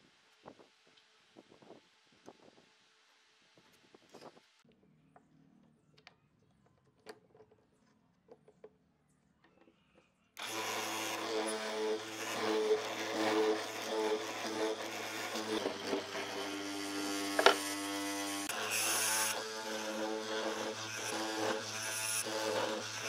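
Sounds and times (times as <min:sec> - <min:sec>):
chisel cutting into wood: 0:10.4 - 0:23.0
mortiser motor humming: 0:10.4 - 0:23.0
hand tools tapping on wood: 0:17.4 - 0:17.6.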